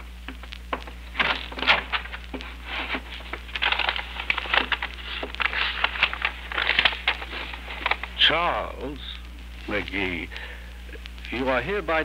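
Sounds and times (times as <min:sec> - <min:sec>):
paper rustling and crinkling: 0:00.8 - 0:08.6.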